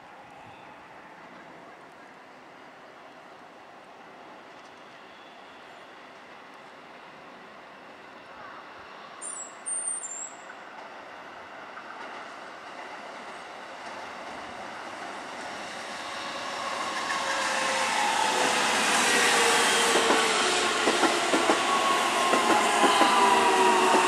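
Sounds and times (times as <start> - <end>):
train motor whine: 16.2 - 24.0
train wheels clacking over rail joints: 19.0 - 24.0.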